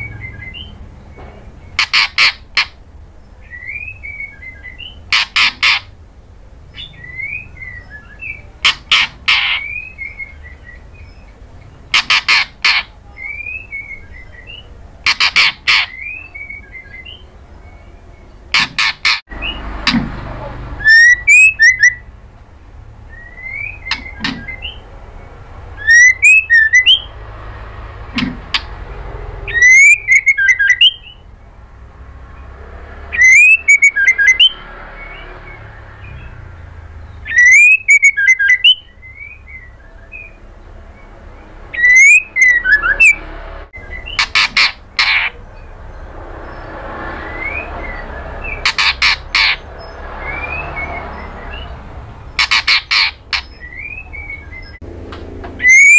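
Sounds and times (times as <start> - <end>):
bird harsh rasping calls: 0.0 - 6.0, 6.6 - 22.2, 22.9 - 54.8, 55.6 - 55.9
bird rising whistles: 33.1 - 34.6, 41.8 - 43.2, 55.6 - 55.9.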